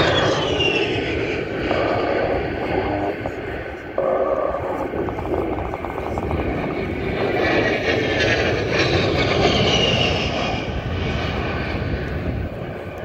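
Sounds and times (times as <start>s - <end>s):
jet aircraft fly-by: 0.0s - 13.0s.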